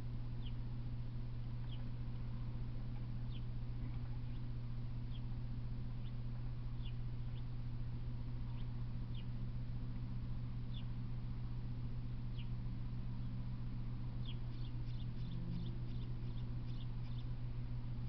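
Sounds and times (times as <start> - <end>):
steady low hum: 0.0 - 18.0
small birds chirping: 0.3 - 0.8, 1.6 - 9.7, 10.6 - 18.0.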